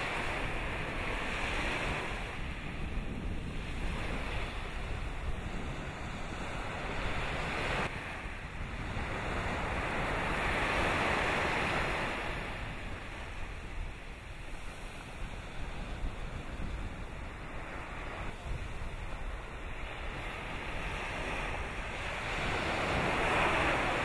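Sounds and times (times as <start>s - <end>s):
surf washing onto beach: 0.0s - 24.0s
wind rumbling on microphone: 0.0s - 24.0s.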